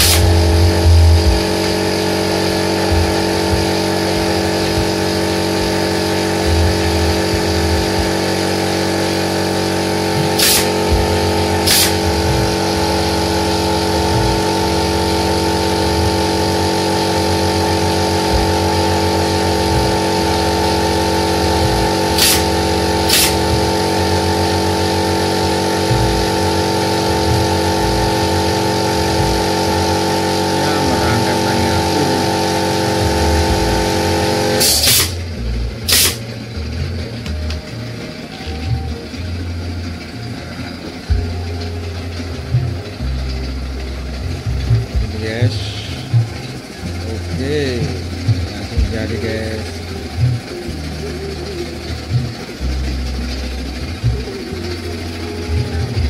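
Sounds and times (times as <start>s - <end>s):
steady machine drone: 0.0s - 56.0s
nail gun shots: 10.4s - 10.8s, 11.7s - 12.0s, 22.2s - 22.5s, 23.1s - 23.4s, 34.6s - 35.2s, 35.9s - 36.2s.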